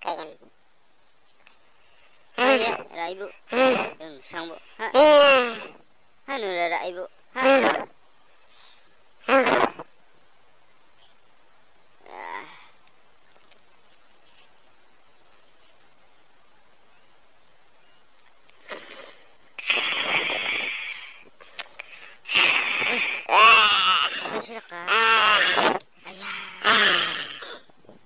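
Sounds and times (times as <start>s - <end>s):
crickets chirring: 0.0s - 28.0s
wordless voice sounds: 2.4s - 7.9s, 24.0s - 27.2s.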